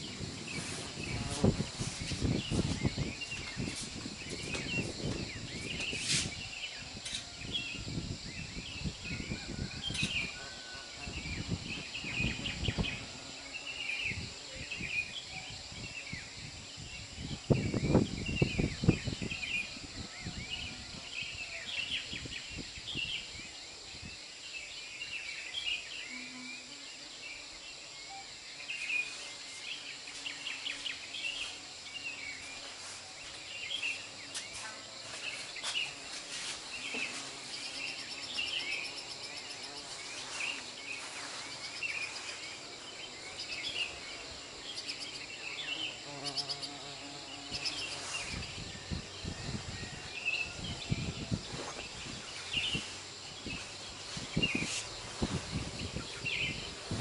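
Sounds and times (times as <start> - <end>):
small birds chirping: 0.0 - 7.8, 28.6 - 57.0.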